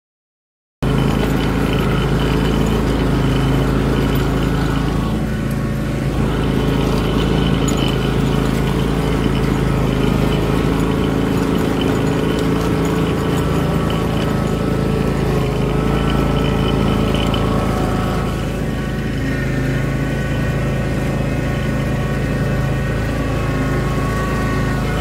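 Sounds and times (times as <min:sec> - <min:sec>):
riding lawn mower engine running: 0:00.8 - 0:25.0.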